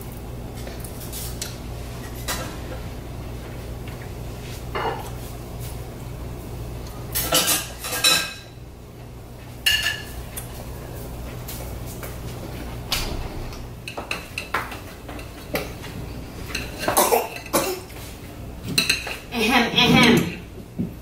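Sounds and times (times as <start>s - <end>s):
dishes and cutlery clinking: 2.0s - 2.8s, 7.1s - 8.6s, 9.6s - 10.4s, 13.8s - 20.5s.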